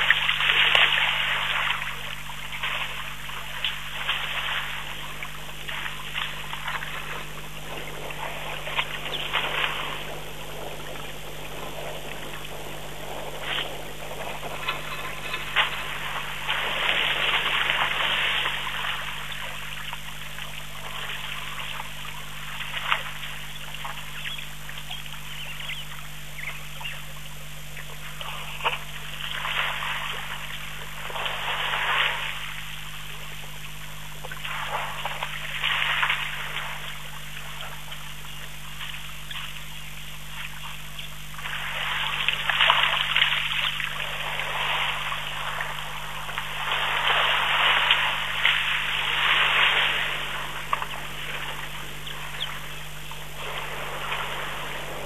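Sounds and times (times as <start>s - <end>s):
water splashing and trickling: 0.0s - 11.5s, 27.8s - 55.0s
low electrical hum: 0.0s - 55.0s.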